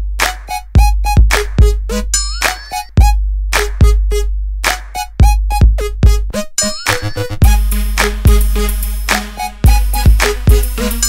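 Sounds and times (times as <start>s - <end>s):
heavy kick drum: 0.8s - 1.9s, 3.0s - 4.1s, 5.2s - 6.3s, 7.4s - 8.8s, 9.6s - 10.8s
synth stabs: 7.0s - 11.0s.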